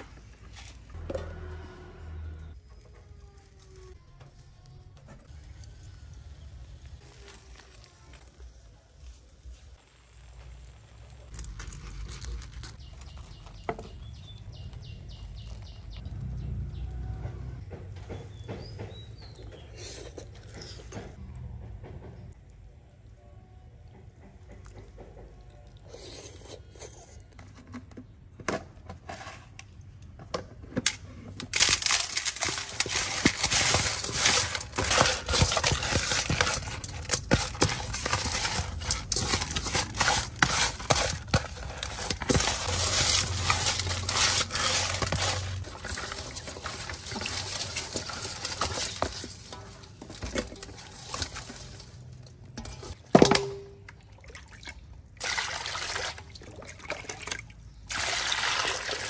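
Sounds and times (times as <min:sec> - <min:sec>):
fish scrubbed with coarse salt: 0:31.6 - 0:52.2.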